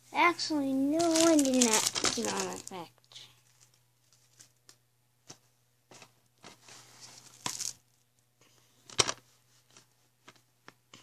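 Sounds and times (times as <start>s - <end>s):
plastic rustling: 0.8s - 4.8s, 5.9s - 8.1s.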